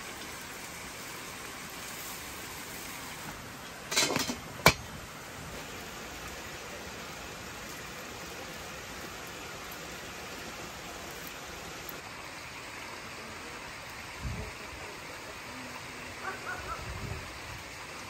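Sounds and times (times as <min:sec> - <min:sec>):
pot lid clacking onto pot: 0:03.9 - 0:04.9.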